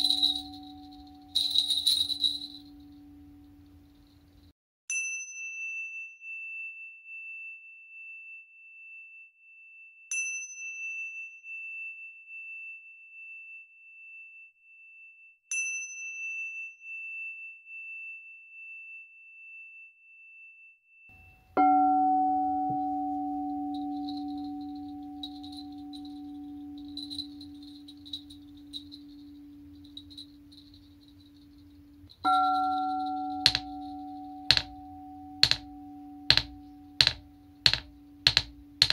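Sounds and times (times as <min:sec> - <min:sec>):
crystal singing bowl ringing: 0:00.0 - 0:03.5, 0:21.2 - 0:38.8
tingsha cymbals ringing: 0:23.4 - 0:38.8.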